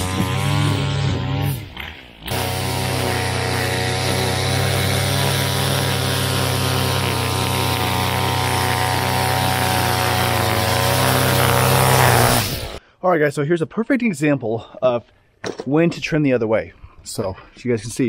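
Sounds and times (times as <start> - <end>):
string trimmer engine running: 0.0 - 12.8
trimmer line cutting along curb: 0.0 - 12.8.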